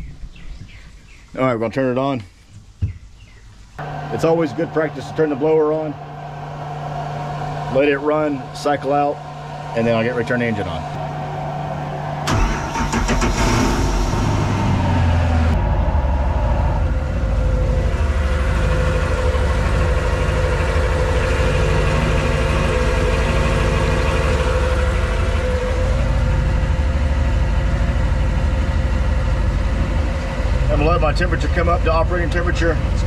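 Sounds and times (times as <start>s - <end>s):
boat engine starting and idling: 3.8s - 33.0s.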